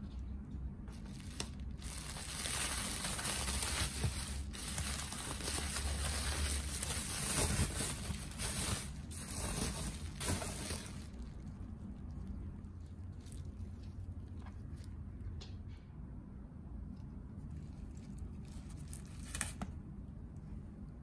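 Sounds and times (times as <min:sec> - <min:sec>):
bubble wrap crinkling: 0:00.9 - 0:15.0, 0:17.5 - 0:19.8.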